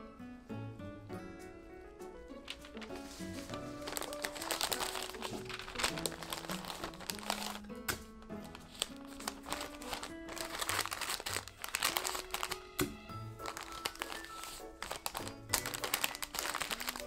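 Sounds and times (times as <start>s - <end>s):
light background music: 0.0s - 17.0s
wrapping paper crinkling: 2.4s - 17.0s.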